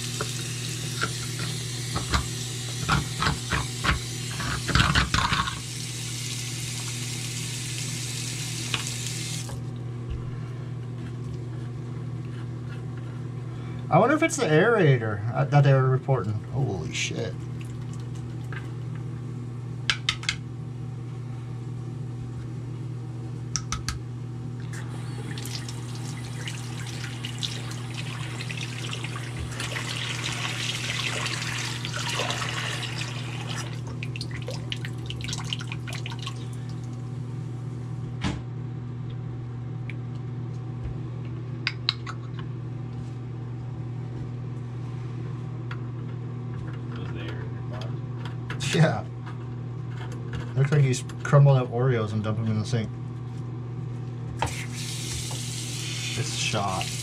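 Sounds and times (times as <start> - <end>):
faucet running water into sink: 0.0 - 9.6, 24.8 - 36.6, 54.4 - 57.0.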